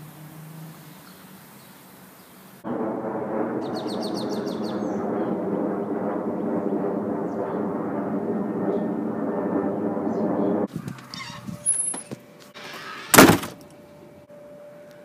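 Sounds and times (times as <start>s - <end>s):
loud dense din: 2.6s - 10.7s.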